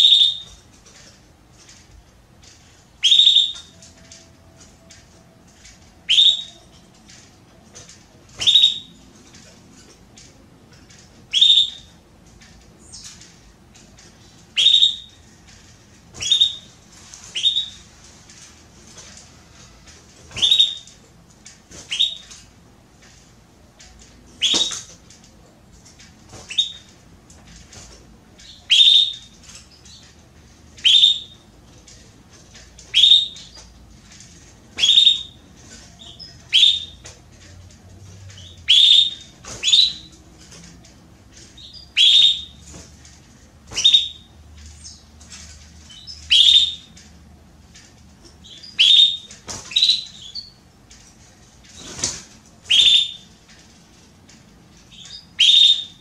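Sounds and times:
canary high calls: 0:00.0 - 0:00.6, 0:03.0 - 0:03.8, 0:06.0 - 0:06.8, 0:08.4 - 0:08.9, 0:11.3 - 0:11.9, 0:14.5 - 0:15.2, 0:16.2 - 0:16.7, 0:17.3 - 0:17.9, 0:20.3 - 0:21.0, 0:21.9 - 0:22.3, 0:28.4 - 0:30.0, 0:30.8 - 0:31.4, 0:32.8 - 0:33.6, 0:34.8 - 0:37.0, 0:38.4 - 0:40.2, 0:41.6 - 0:42.6, 0:43.7 - 0:45.0, 0:45.9 - 0:46.9, 0:48.4 - 0:50.6, 0:52.7 - 0:53.3, 0:54.9 - 0:56.0.

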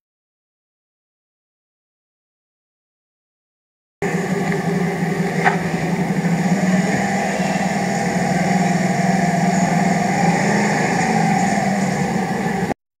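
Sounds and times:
scooter engine running: 0:04.0 - 0:12.8.

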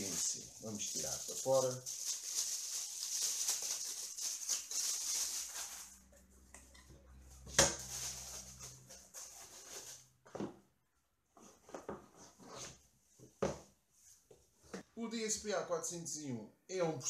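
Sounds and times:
plastic bag crinkling: 0:00.0 - 0:06.1, 0:07.8 - 0:08.8.

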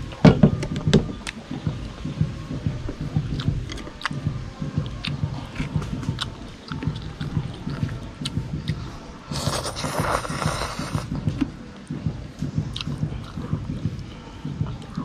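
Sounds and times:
close-up chewing: 0:00.7 - 0:11.5, 0:12.6 - 0:14.0
person slurping noodles: 0:09.3 - 0:11.1.

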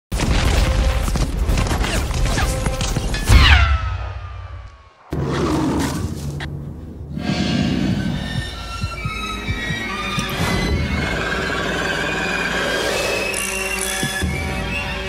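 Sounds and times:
low dark trailer music: 0:00.2 - 0:15.0.

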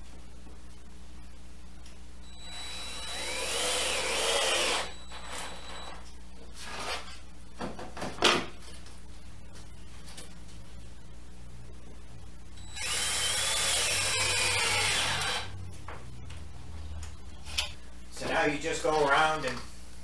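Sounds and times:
cordless drill into wood: 0:02.3 - 0:05.9, 0:12.6 - 0:15.5.

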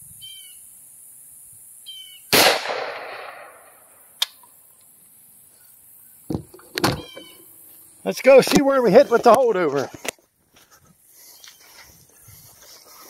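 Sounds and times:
rifle shot: 0:02.3 - 0:03.8.

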